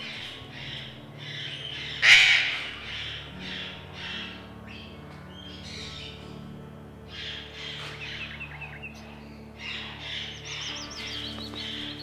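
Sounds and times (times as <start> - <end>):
parrots calling harshly: 0.2 - 4.4
loud parrot squawk: 0.6 - 4.4.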